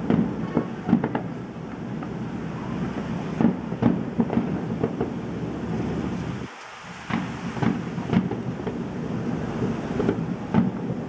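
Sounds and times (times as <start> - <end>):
low rumble: 0.0 - 6.5
distant firework bangs: 0.0 - 11.0.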